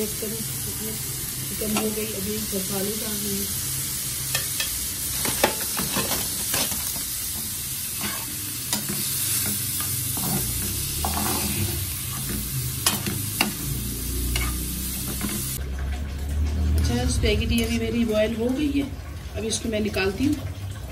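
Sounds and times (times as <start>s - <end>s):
chicken sizzling in a frying pan: 0.0s - 15.7s
metal spoon scraping and tapping pan: 4.3s - 7.1s, 8.0s - 15.5s.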